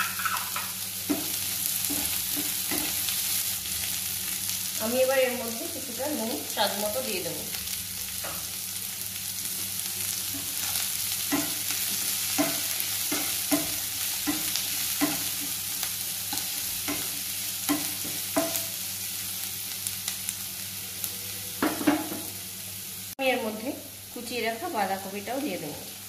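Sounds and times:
spatula knocking and scraping pan: 0:00.0 - 0:03.0, 0:10.3 - 0:15.6, 0:16.3 - 0:18.7
potato and onion sizzling in oil: 0:00.0 - 0:26.0.

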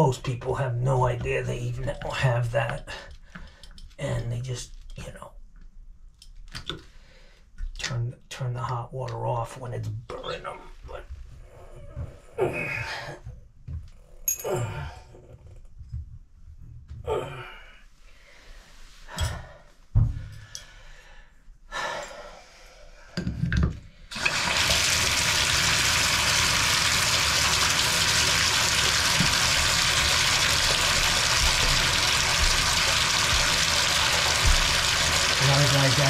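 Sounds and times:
shower water running: 0:24.1 - 0:36.0.

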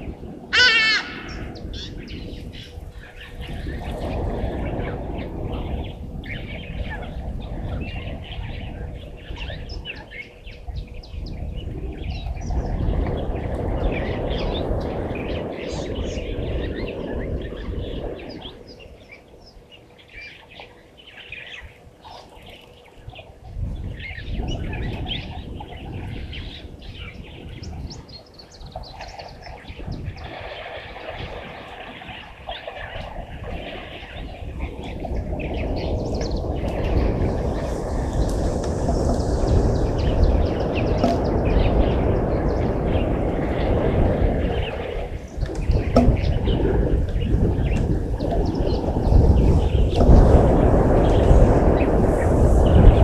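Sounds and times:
small birds chirping: 0:00.0 - 0:53.0
low rushing noise: 0:30.1 - 0:53.0.

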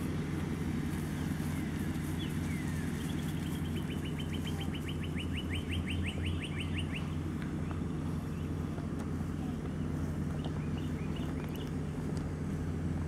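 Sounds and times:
steady low hum: 0:00.0 - 0:13.0
songbird trilling: 0:02.2 - 0:07.2.

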